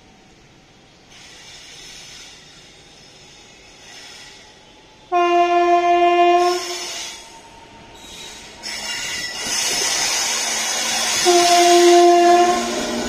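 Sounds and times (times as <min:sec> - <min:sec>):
train rushing: 0:00.0 - 0:13.0
train horn blast: 0:05.1 - 0:06.9, 0:11.2 - 0:13.0.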